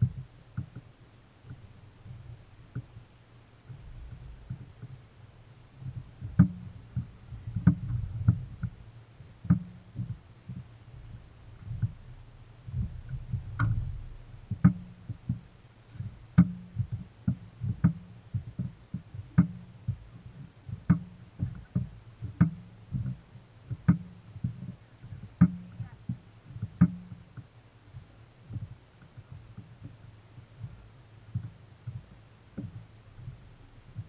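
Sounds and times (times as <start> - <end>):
waves knocking against boat hull: 0.0 - 27.5, 28.1 - 34.0.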